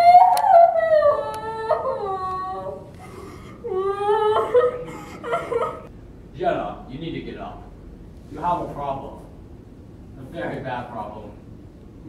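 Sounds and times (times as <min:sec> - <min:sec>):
woman wailing and sobbing: 0:00.0 - 0:02.9, 0:03.6 - 0:05.9.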